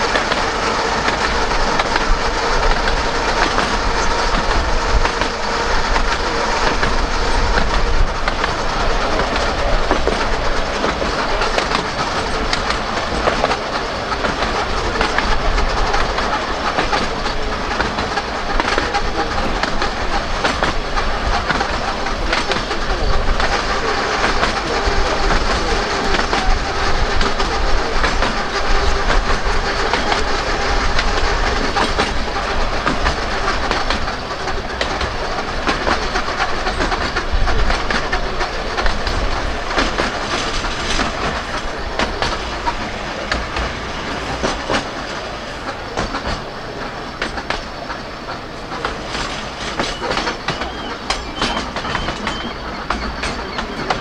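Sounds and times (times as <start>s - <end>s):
tram rolling rumble: 0.0s - 54.0s
wheels clicking over rails: 0.0s - 54.0s.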